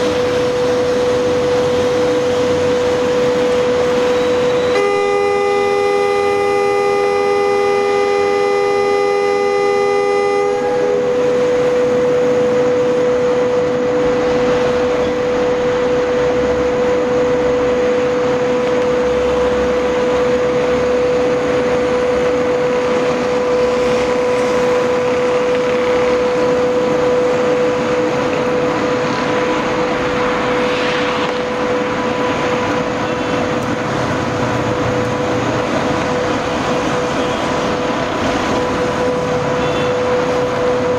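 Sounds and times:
constant high-pitched tone: 0.0 - 40.9
train wheels rumbling on rails: 0.0 - 40.9
locomotive horn blast: 2.7 - 29.8, 36.8 - 40.9.

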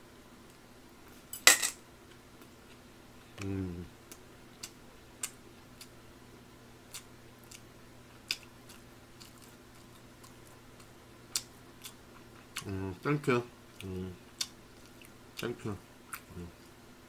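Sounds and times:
chewing: 6.9 - 13.0, 16.1 - 16.8.

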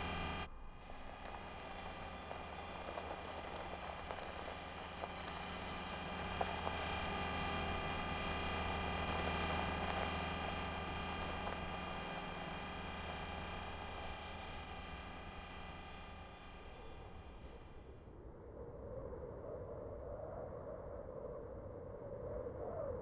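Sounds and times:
motors humming: 0.0 - 18.0.

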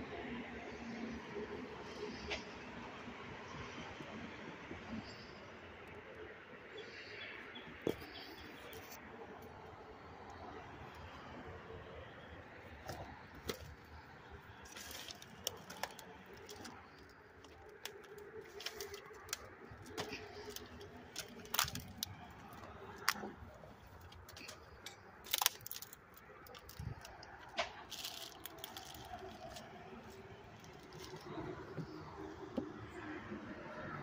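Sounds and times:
footsteps through dry twigs: 12.8 - 31.4.

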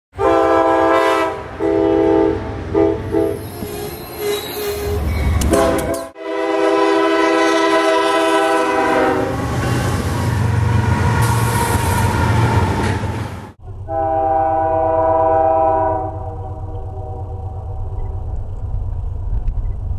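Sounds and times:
locomotive air horn blasts: 0.2 - 3.4, 5.4 - 9.8, 13.8 - 17.4
locomotives rumbling past: 8.7 - 19.9.

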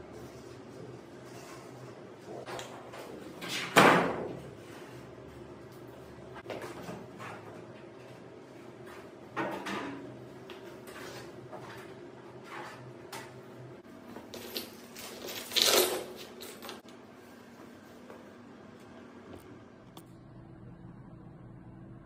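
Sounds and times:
parts clattering: 14.2 - 16.8.

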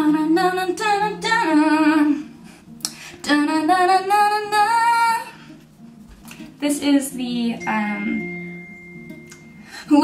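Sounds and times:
woman singing with vibrato: 0.0 - 2.4, 3.2 - 5.4, 9.8 - 10.0.

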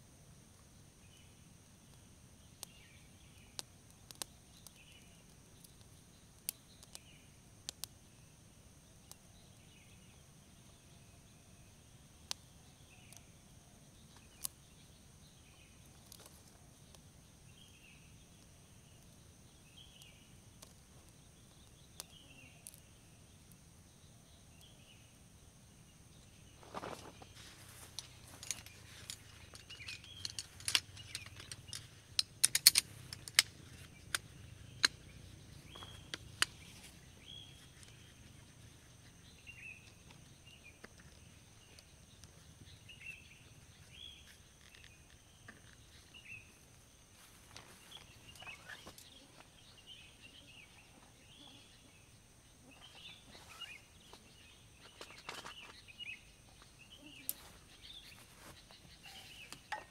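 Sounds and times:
forest ambience: 0.0 - 59.9
birds chirping: 0.7 - 59.9
rustling: 26.2 - 39.2
metal chair frame clicking: 28.4 - 33.5.

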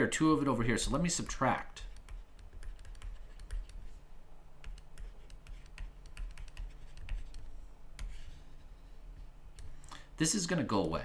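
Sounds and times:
steady low hum: 0.0 - 11.0
stylus tapping on tablet: 1.9 - 3.8, 4.6 - 8.2.

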